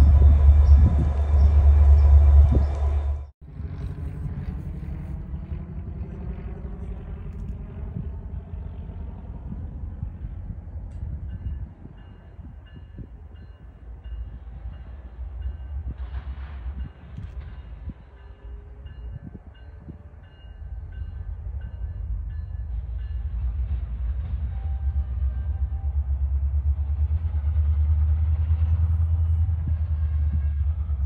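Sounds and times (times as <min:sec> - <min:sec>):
diesel locomotive idling: 0:00.0 - 0:11.3.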